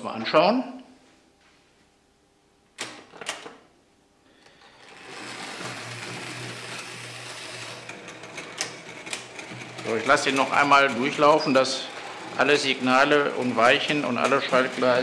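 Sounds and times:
model train running on track: 4.8s - 15.0s.

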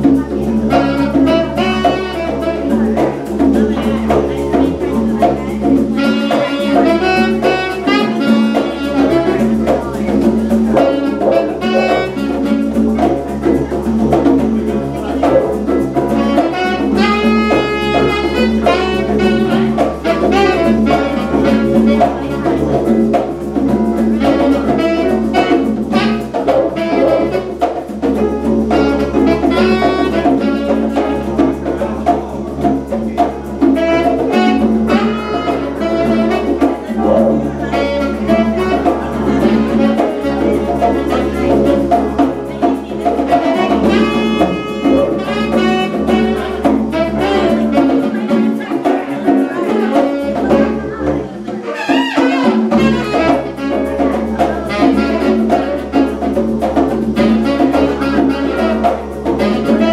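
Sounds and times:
didgeridoo droning: 0.0s - 59.9s
hand drums: 0.0s - 59.9s
saxophone melody: 0.0s - 59.9s.

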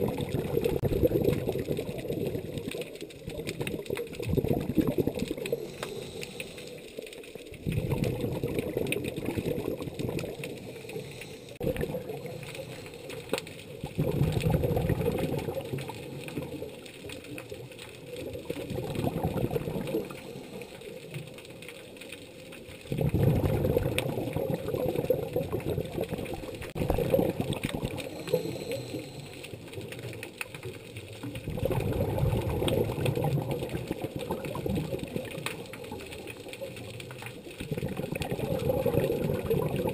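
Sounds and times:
exhaled bubbles rattling underwater: 0.0s - 39.9s.

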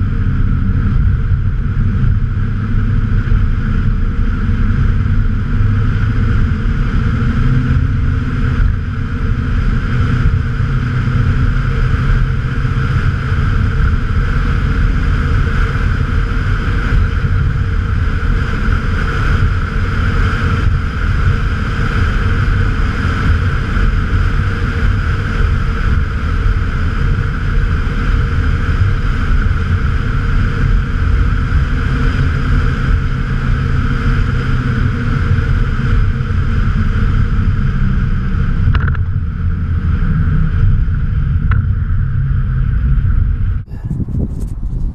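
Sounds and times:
pickup truck engine cruising: 0.0s - 44.9s.

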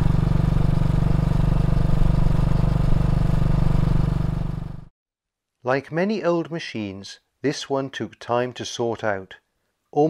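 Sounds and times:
motorcycle engine running: 0.0s - 4.9s.

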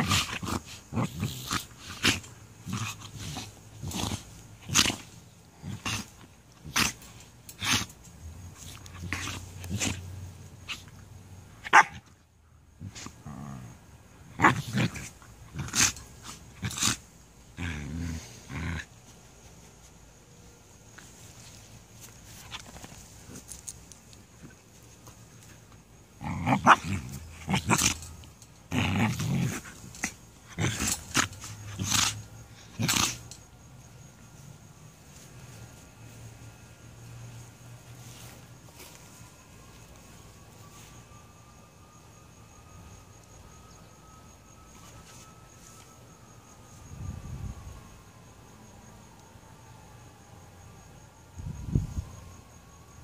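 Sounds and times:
puppies play-growling: 0.0s - 7.9s.

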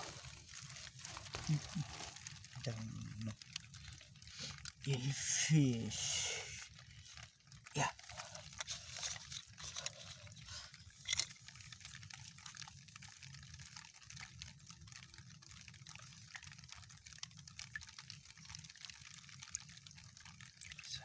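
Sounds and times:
muddy water dripping and trickling: 0.0s - 21.0s.

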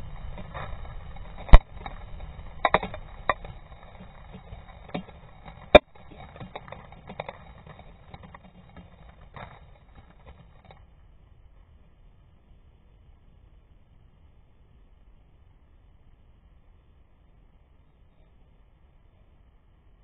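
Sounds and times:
debris falling and clicking: 0.0s - 10.8s
low rumble: 0.0s - 15.5s.

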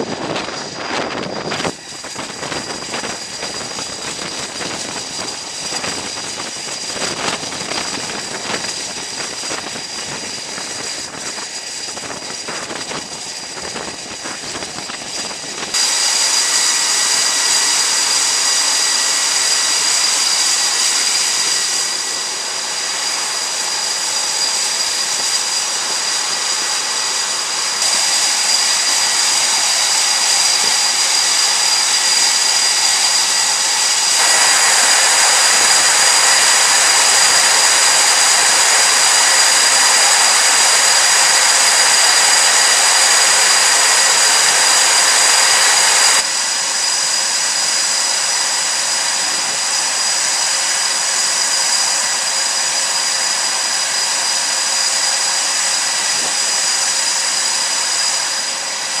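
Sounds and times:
jet engines whining: 0.0s - 59.0s.

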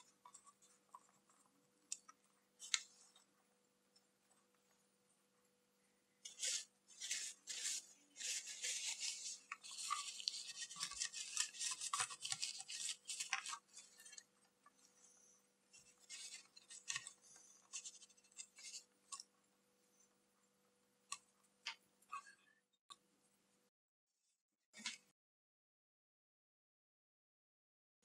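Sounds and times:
paper towel scrubbing plastic: 6.2s - 14.3s, 15.7s - 19.2s.

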